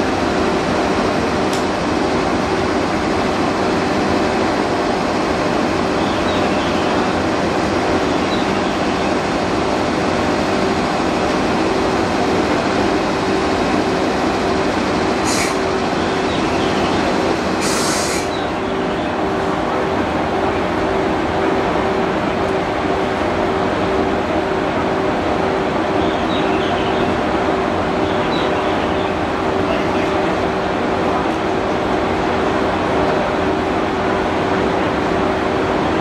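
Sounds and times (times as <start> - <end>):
locomotive cooling blowers humming: 0.0 - 36.0
air hisses: 15.2 - 15.6, 17.6 - 18.3.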